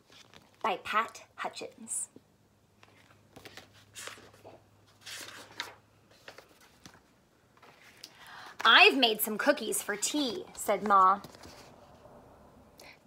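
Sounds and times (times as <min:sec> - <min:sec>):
paper pages turning: 0:00.0 - 0:00.6, 0:02.8 - 0:12.0
faint paper rustles: 0:00.0 - 0:00.7, 0:02.8 - 0:12.1.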